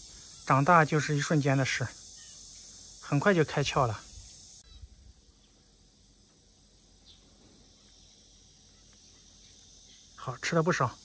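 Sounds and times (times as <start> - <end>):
faint outdoor background hiss: 0.0 - 11.0.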